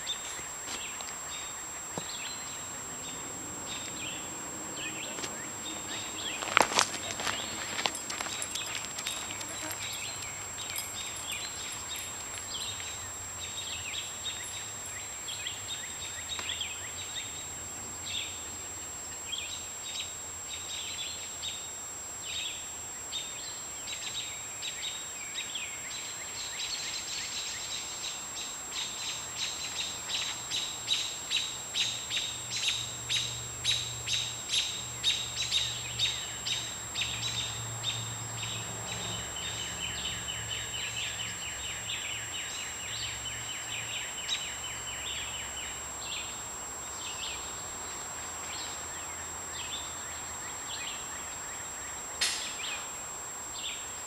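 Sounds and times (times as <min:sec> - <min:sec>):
high-pitched whine: 0:00.0 - 0:21.2
songbirds chirping: 0:00.0 - 0:21.7, 0:22.3 - 0:54.0.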